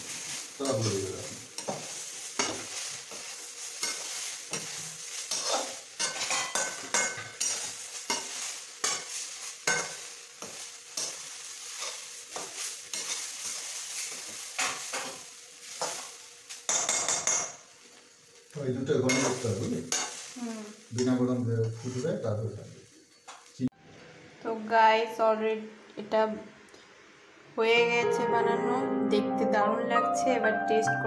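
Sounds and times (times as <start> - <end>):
metal spatula scraping a wok: 0.0 - 17.5, 19.1 - 20.4, 21.6 - 22.2
carrots sizzling: 0.0 - 23.7.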